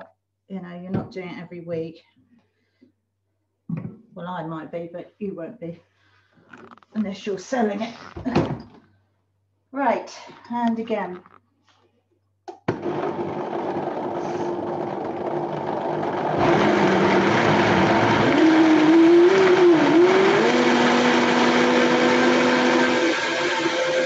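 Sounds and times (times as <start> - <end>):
electric blender whining: 12.7 - 24.0.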